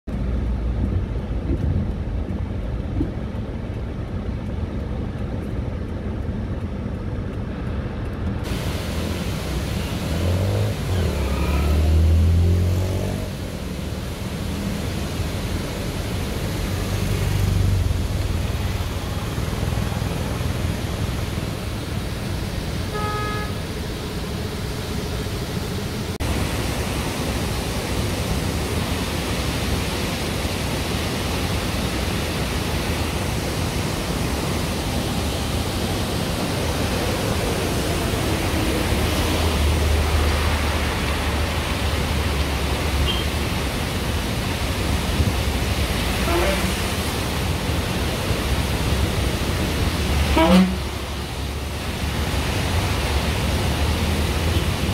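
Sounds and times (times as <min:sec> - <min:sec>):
heavy rain: 0:00.1 - 0:54.9
waterfall rushing: 0:08.4 - 0:54.9
vehicle rumbling past: 0:09.0 - 0:22.8, 0:36.6 - 0:43.0
vehicle horn: 0:22.9 - 0:23.6, 0:43.0 - 0:43.3, 0:46.2 - 0:46.8, 0:50.3 - 0:51.0.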